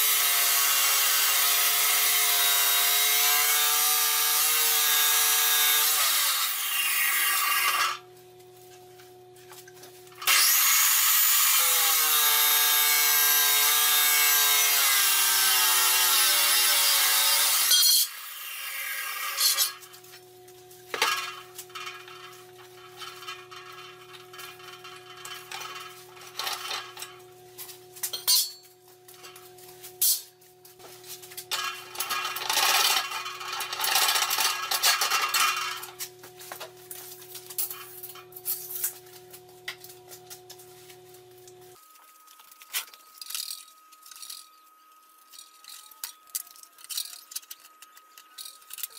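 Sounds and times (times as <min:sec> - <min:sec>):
chop saw cutting steel: 0:00.0 - 0:08.0, 0:10.2 - 0:19.9, 0:31.5 - 0:36.0.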